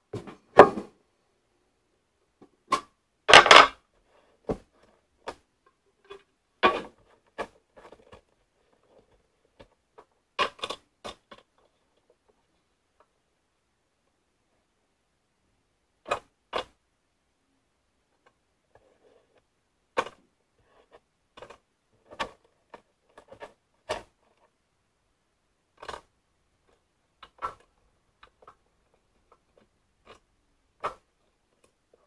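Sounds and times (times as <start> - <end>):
rustling of puzzle pieces: 2.6 - 13.2, 18.0 - 24.6, 25.7 - 32.0.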